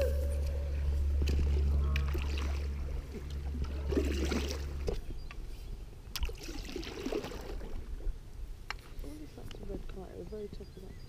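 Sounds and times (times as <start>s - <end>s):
low steady hum: 0.0s - 11.0s
water trickling and splashing: 1.1s - 5.2s, 6.1s - 8.3s.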